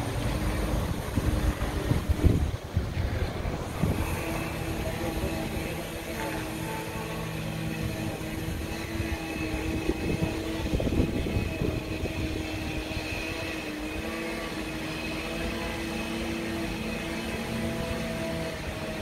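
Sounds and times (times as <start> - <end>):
lawn mower engine running: 0.0 - 19.0.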